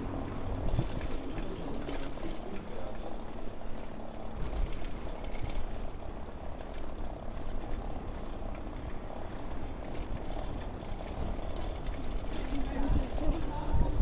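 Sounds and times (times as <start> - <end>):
bicycle rolling over bricks: 0.0 - 14.0
wind noise on microphone: 0.4 - 1.2, 11.0 - 14.0.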